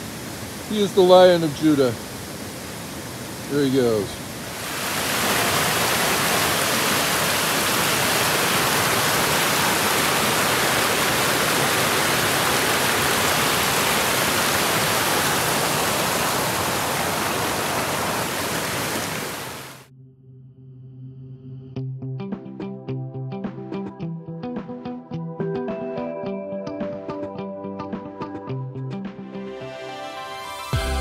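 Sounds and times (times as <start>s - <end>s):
water rushing over rocks: 0.0s - 19.9s.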